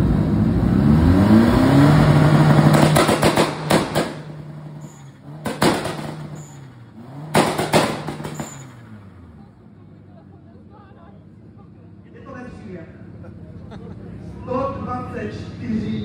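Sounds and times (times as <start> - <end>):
car engine revving: 0.0 - 10.3
exhaust pops and crackles: 2.5 - 4.5, 5.3 - 6.6, 7.3 - 8.7.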